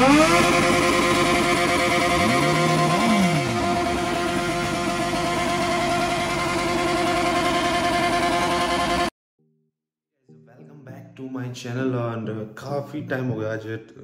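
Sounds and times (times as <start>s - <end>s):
motorcycle engine at high revs: 0.0s - 9.1s
second engine revving: 0.0s - 9.1s.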